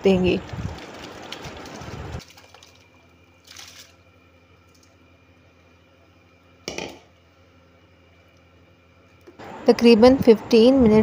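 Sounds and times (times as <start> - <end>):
faint steady hum: 0.0 - 11.0
rice poured into boiling liquid: 0.6 - 4.0.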